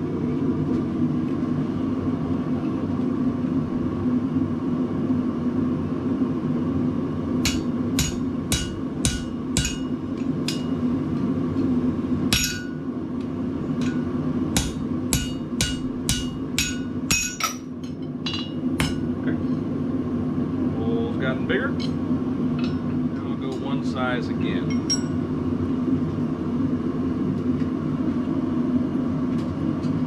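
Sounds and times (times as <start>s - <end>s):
hammer striking metal on anvil: 7.4s - 10.8s, 12.3s - 12.8s, 13.8s - 19.1s.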